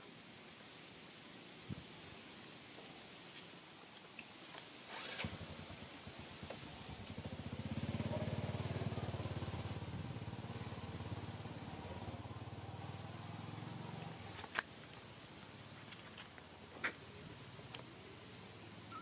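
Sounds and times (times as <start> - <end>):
small engine running: 4.9 - 11.2.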